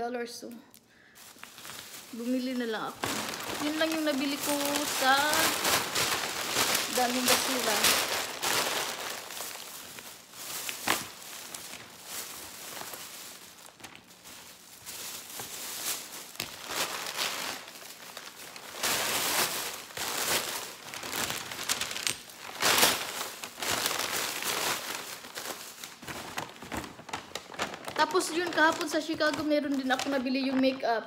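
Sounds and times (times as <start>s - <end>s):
packing paper crinkling: 1.0s - 31.0s.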